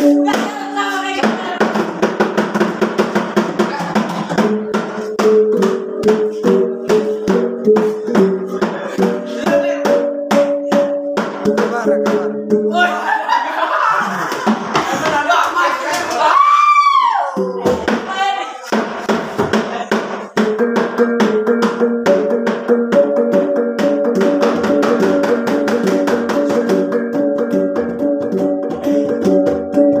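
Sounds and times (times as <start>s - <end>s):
sticks on small drums: 0.0s - 12.7s, 14.2s - 30.0s
people shouting: 12.7s - 14.4s, 15.1s - 18.6s
people laughing: 12.7s - 16.6s.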